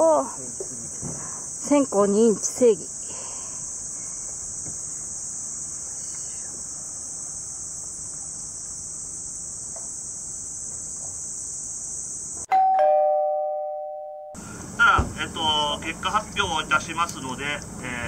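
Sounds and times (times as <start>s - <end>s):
insect chorus shrilling: 0.0s - 12.5s
two-note ding-dong chime: 12.5s - 14.4s.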